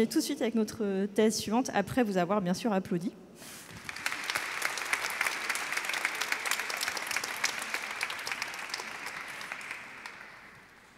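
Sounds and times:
small audience applauding: 3.6s - 10.9s.

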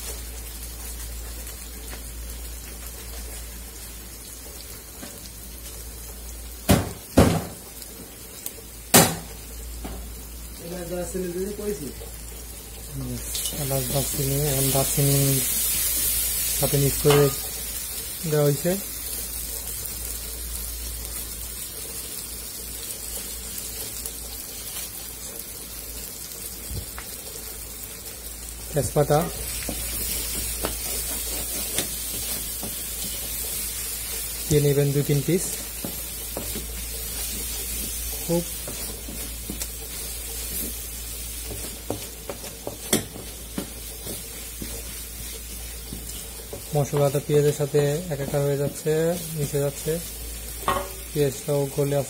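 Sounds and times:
onions sizzling in oil: 0.0s - 52.0s
spatula scraping a metal pan: 30.6s - 32.4s.

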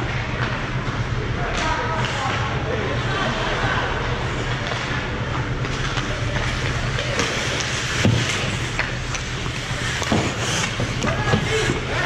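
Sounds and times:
spectator chatter: 0.0s - 12.0s
skates on ice: 4.3s - 12.0s
hockey sticks and puck knocking: 4.6s - 12.0s.

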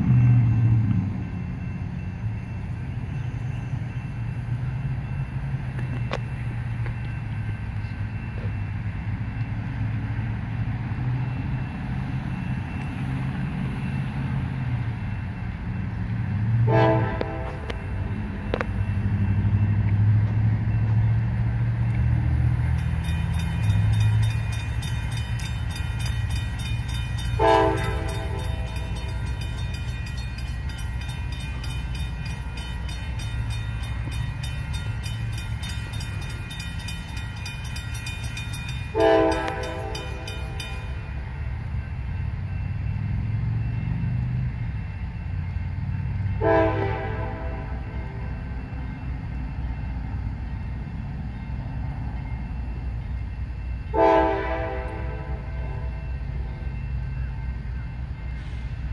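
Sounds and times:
locomotive engine rumble: 0.0s - 58.9s
train horn blasts: 16.6s - 18.6s, 27.2s - 29.0s, 38.9s - 40.6s, 46.4s - 48.2s, 53.9s - 56.0s
fast ringing bell: 22.5s - 41.3s.

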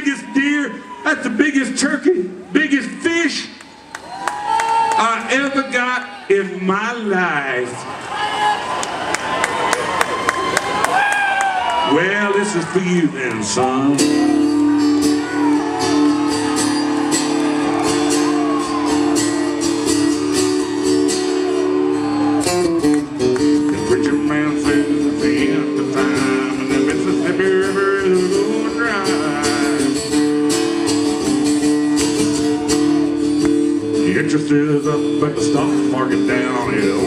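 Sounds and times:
acoustic guitar strumming: 13.5s - 37.0s.

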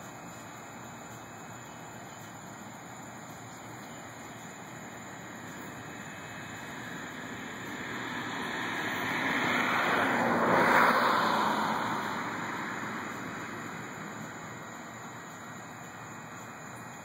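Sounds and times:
vehicle passing by: 4.9s - 15.2s.

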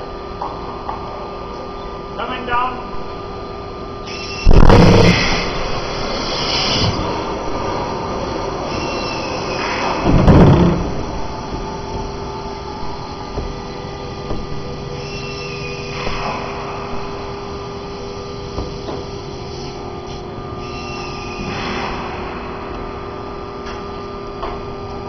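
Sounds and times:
steady mechanical hum: 0.0s - 25.0s.

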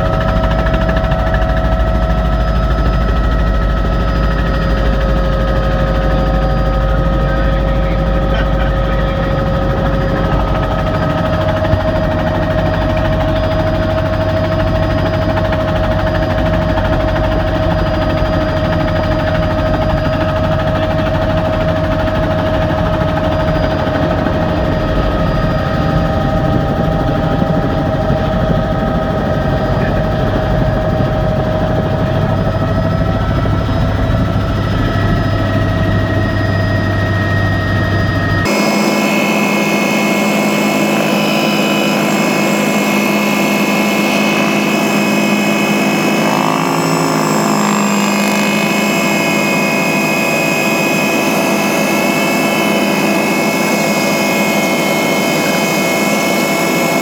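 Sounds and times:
helicopter turbine and rotor drone: 0.0s - 57.0s.

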